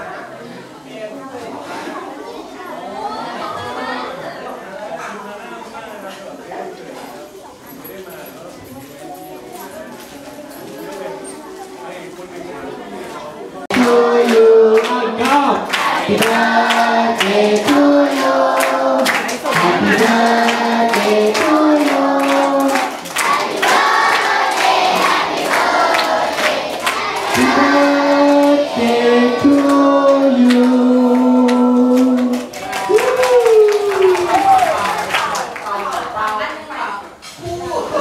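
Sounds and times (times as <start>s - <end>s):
group singing in unison: 13.7s - 32.5s.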